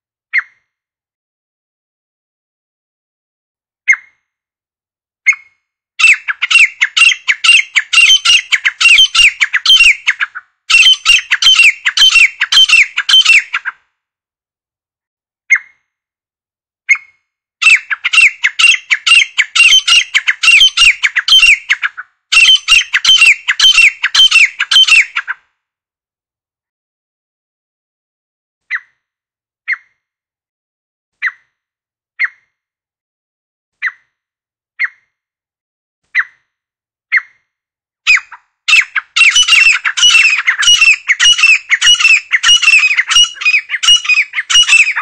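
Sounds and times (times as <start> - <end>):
francolin calling: 6.0 - 13.6, 17.6 - 21.8, 22.4 - 25.2, 38.1 - 45.0.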